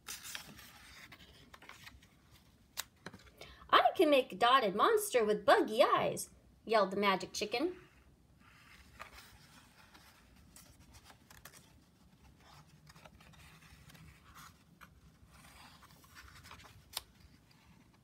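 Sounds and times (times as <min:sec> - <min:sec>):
paper pages rustling: 0:00.0 - 0:03.4, 0:08.4 - 0:18.0.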